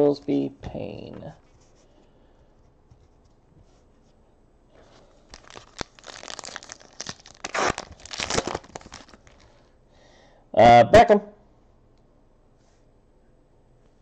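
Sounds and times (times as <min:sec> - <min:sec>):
foil wrapper crinkling: 0:05.0 - 0:09.6
foil pack ripping: 0:05.3 - 0:09.5.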